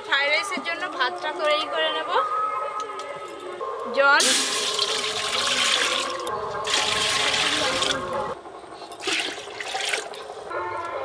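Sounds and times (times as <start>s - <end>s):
water pouring into metal pot: 4.2s - 8.0s, 9.0s - 10.2s.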